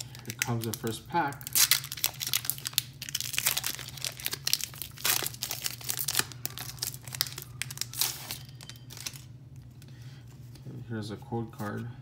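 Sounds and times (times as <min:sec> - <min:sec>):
foil wrapper tearing and crinkling: 0:00.0 - 0:09.3.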